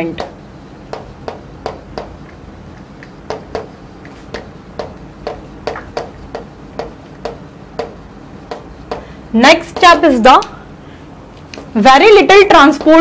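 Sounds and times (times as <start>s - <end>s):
chalk tapping on a chalkboard: 0.1s - 9.1s, 9.7s - 10.1s, 12.5s - 13.0s.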